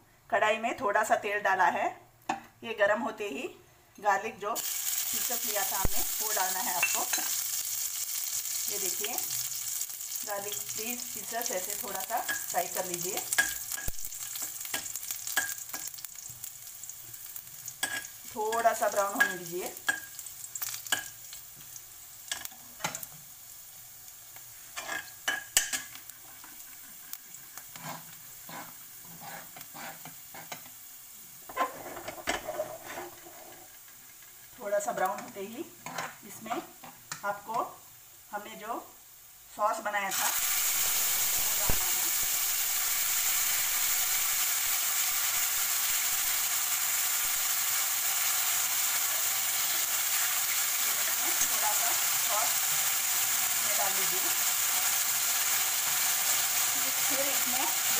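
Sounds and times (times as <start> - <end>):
garlic sizzling in hot oil: 4.1 - 57.9
spoon clinking and scraping pan: 6.6 - 7.5, 11.8 - 16.0, 17.2 - 21.2, 24.8 - 30.7.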